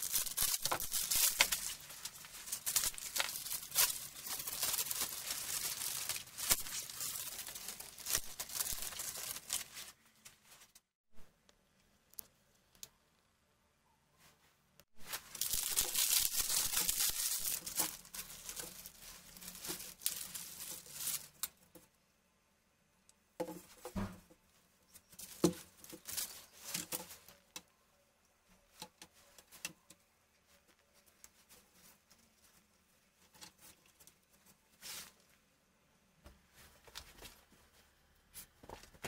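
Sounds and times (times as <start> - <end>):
plastic bag crinkling and tearing: 0.0 - 10.0, 15.0 - 21.6, 25.2 - 27.0.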